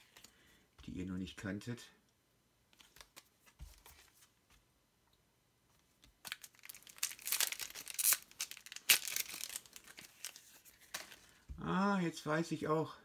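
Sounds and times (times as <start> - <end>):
wrapper crinkling and ripping: 6.2 - 11.4.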